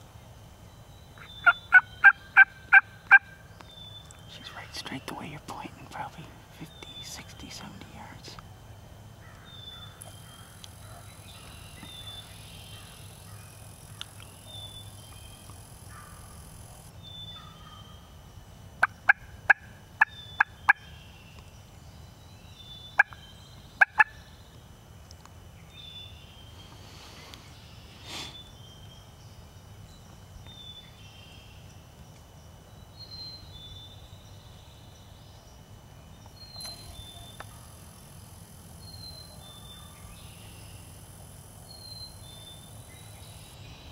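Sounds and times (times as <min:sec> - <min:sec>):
turkey yelps: 0:01.4 - 0:03.3.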